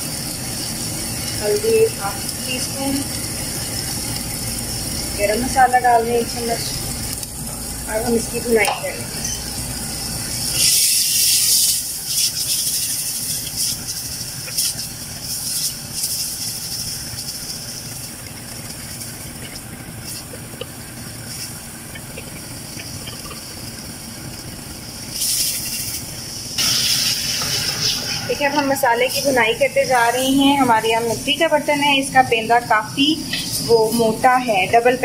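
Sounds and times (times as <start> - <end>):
sauce sizzling in hot oil: 0.0 - 35.0.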